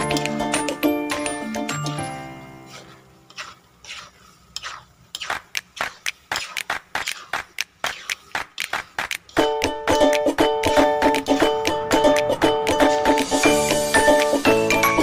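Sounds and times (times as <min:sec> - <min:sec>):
metal spoon scraping a metal pan: 0:01.8 - 0:08.4.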